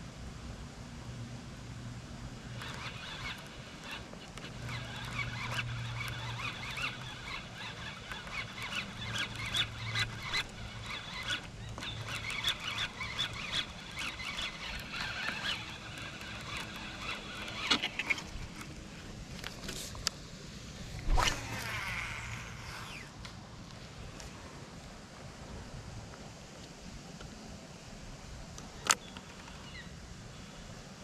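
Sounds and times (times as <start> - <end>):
birds chirping: 2.5 - 18.4.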